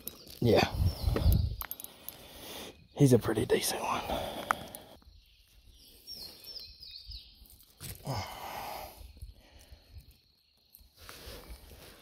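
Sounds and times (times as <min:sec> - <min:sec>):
breathy exhale: 0:08.0 - 0:09.9.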